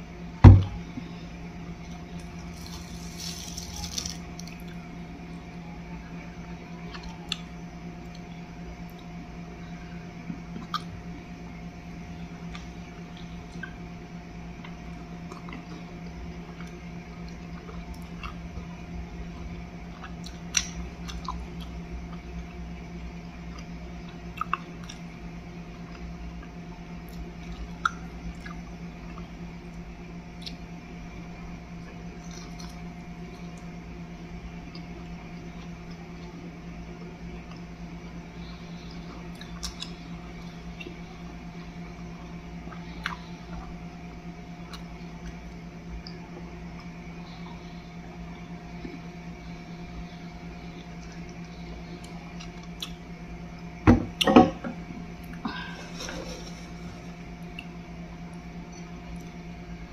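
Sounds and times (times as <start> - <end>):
steady low hum: 0.0 - 59.9
person chewing bread: 1.8 - 4.9, 14.6 - 18.7, 19.3 - 22.7, 23.4 - 25.1, 25.7 - 30.7, 31.8 - 33.7, 39.0 - 41.0, 50.0 - 53.8, 55.1 - 59.4.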